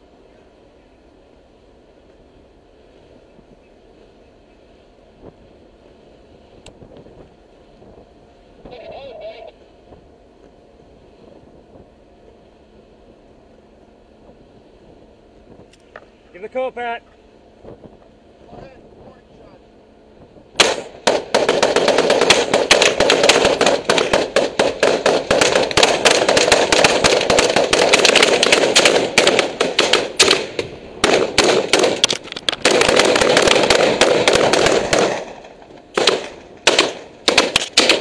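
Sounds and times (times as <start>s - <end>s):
rifle gunfire: 20.6s - 38.0s.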